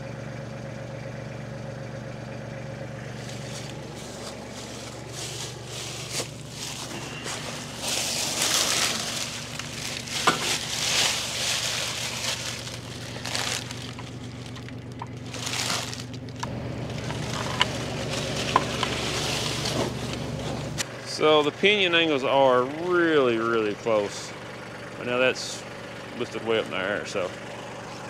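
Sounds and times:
low mechanical hum: 0:00.0 - 0:28.0
scraping and rustling: 0:03.1 - 0:20.8.

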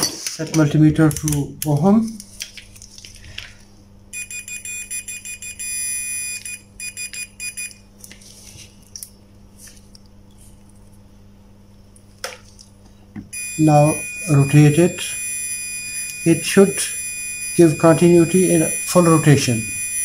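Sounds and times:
multimeter continuity beeping: 0:04.1 - 0:07.8, 0:13.3 - 0:20.0.

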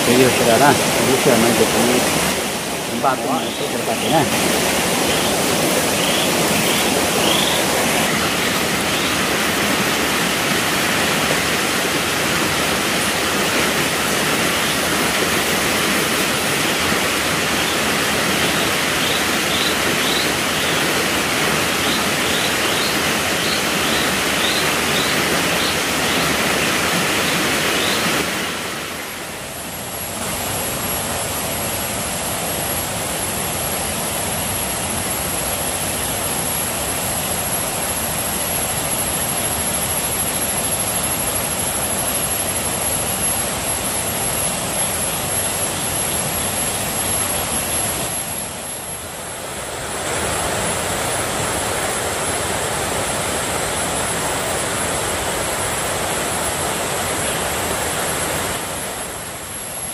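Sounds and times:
stream rushing over rocks: 0:00.0 - 0:29.5
high thin whine: 0:00.0 - 0:33.6.

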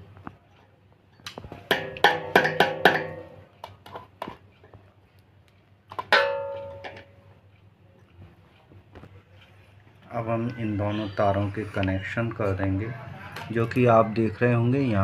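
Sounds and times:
metal hardware knocking and clinking: 0:01.2 - 0:04.4, 0:05.9 - 0:07.2.

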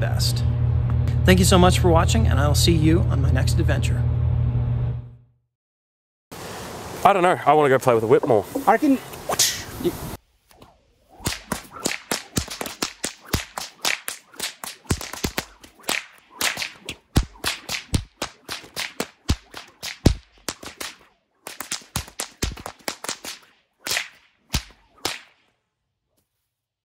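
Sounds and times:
whip cracking: 0:10.4 - 0:25.6.

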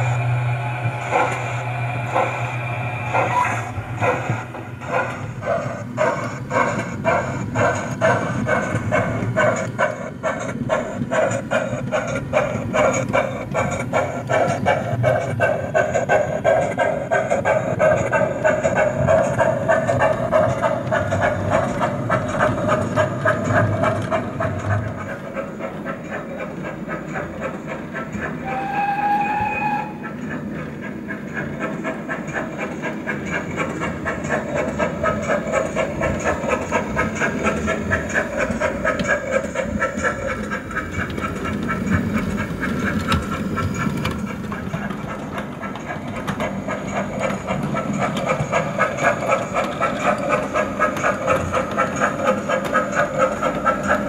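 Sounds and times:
train whistle: 0:00.0 - 0:04.7, 0:28.4 - 0:30.2
steam exhaust beat: 0:00.0 - 0:54.0
model wheels clicking on track: 0:30.1 - 0:54.0.

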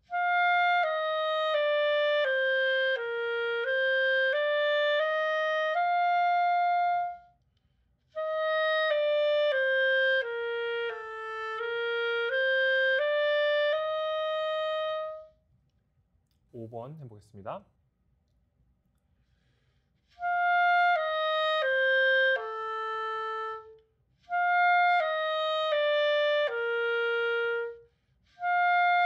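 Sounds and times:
clarinet playing single notes: 0:00.0 - 0:07.4, 0:08.2 - 0:15.4, 0:20.2 - 0:27.8.

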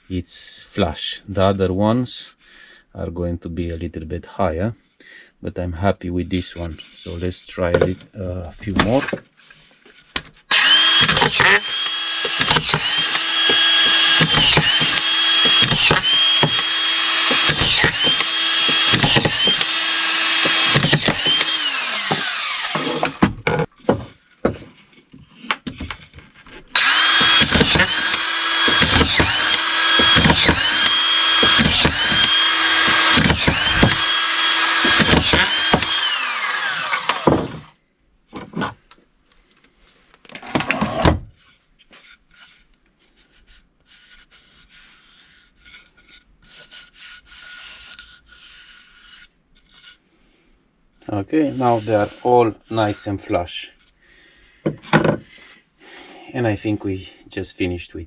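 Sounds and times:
drywall screwdriver driving screws: 0:10.5 - 0:23.4, 0:26.7 - 0:37.7.

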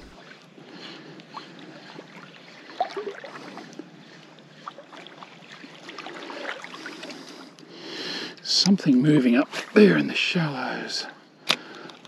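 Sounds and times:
small water splashes: 0:00.0 - 0:07.6
seawater lapping around legs: 0:00.0 - 0:07.8, 0:08.4 - 0:10.3.

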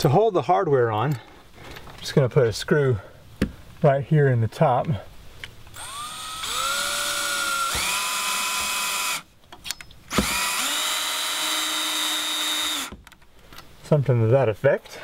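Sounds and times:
power drill driving a screw: 0:05.8 - 0:09.2, 0:10.1 - 0:13.0.

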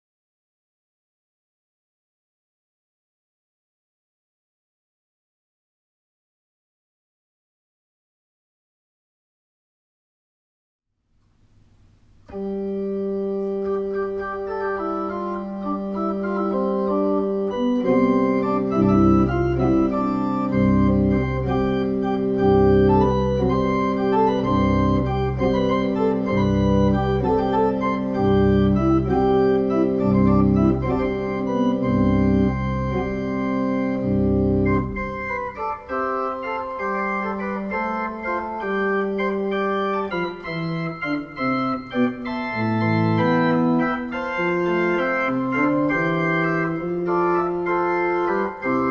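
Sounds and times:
electronic organ chords: 0:11.2 - 0:48.9.

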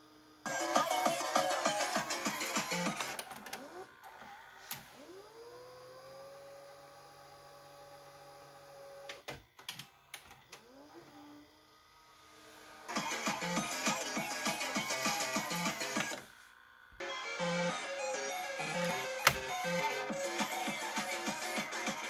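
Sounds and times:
tape motor whine: 0:00.0 - 0:22.0
tape player click: 0:18.8 - 0:19.8.

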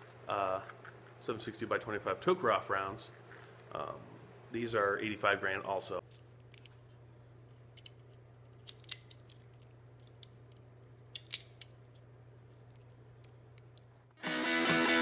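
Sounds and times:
faint steady hum: 0:00.0 - 0:14.2
brass cartridges clicking together: 0:07.8 - 0:12.0.

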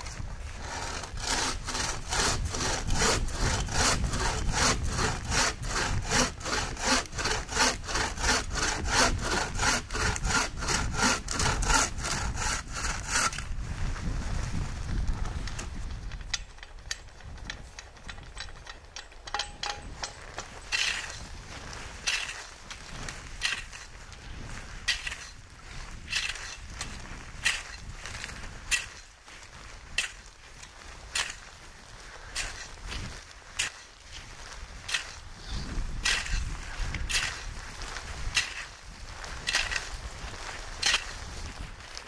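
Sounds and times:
hand saw cutting wood: 0:00.0 - 0:13.5, 0:19.3 - 0:21.3, 0:22.0 - 0:23.9, 0:24.9 - 0:25.4, 0:26.0 - 0:27.9, 0:28.7 - 0:29.1, 0:31.2 - 0:31.4, 0:32.4 - 0:32.8, 0:34.9 - 0:37.5, 0:38.3 - 0:38.8, 0:39.4 - 0:39.9, 0:40.8 - 0:41.2.

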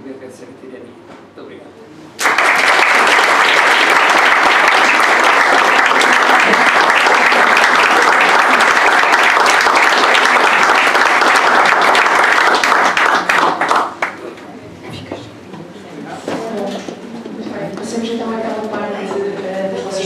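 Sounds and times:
audience applauding: 0:02.2 - 0:14.3.

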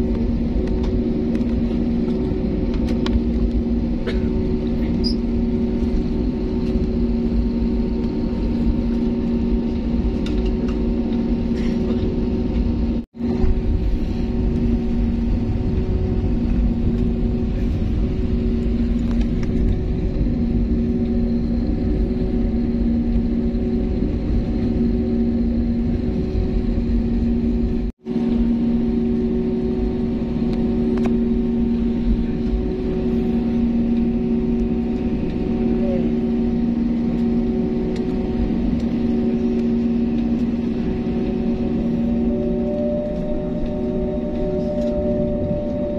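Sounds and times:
jet engines droning in cabin: 0:00.0 - 0:45.9.

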